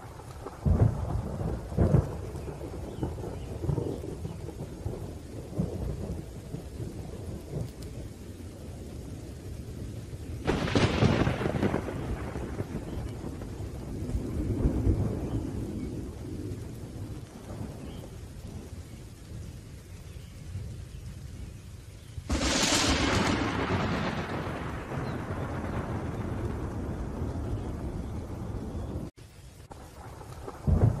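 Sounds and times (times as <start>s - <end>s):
sharp thunderclap: 0.0s - 7.7s, 10.4s - 18.7s, 22.2s - 29.1s, 30.0s - 31.0s
low thunder rumbles: 0.0s - 31.0s
rain: 0.0s - 31.0s.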